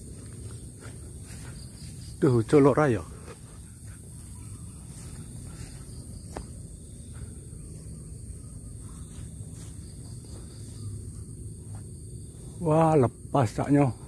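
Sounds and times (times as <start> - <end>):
high-pitched insect drone: 0.0 - 14.0
outdoor rumble and rustle: 0.0 - 14.0.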